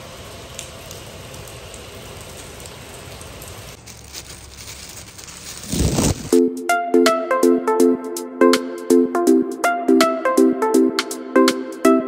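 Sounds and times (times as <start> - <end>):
heavy rain on a tiled roof: 0.0 - 6.4
plastic bag crinkling: 3.7 - 6.4.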